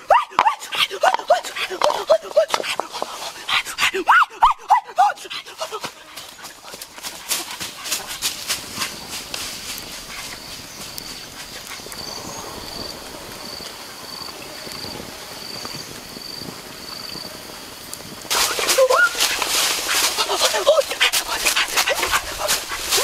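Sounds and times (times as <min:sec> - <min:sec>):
high insect chirp: 0:00.0 - 0:23.0
wood fire crackling: 0:05.4 - 0:23.0.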